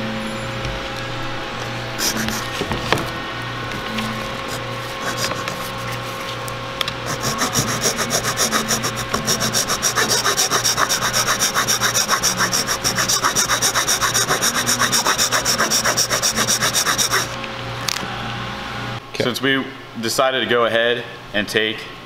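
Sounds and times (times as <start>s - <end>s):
hand file rasping on metal: 4.9s - 5.9s, 7.0s - 17.4s.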